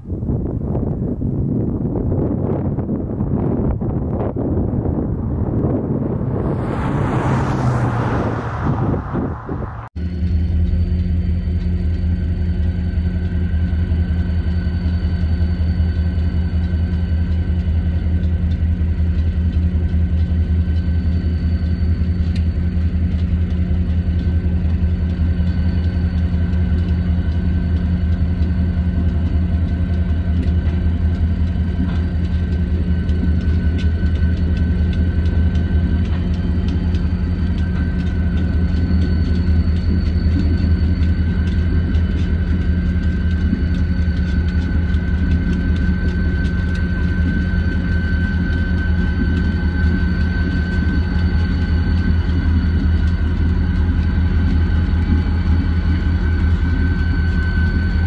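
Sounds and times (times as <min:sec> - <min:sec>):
diesel locomotive engine droning: 0:00.0 - 0:58.0.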